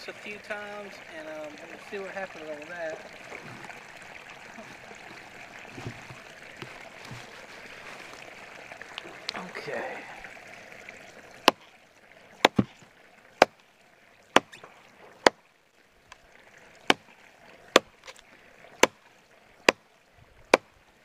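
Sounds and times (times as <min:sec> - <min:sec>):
machete chopping log: 0:11.4 - 0:11.6, 0:12.4 - 0:12.8, 0:14.3 - 0:14.6, 0:18.8 - 0:19.0.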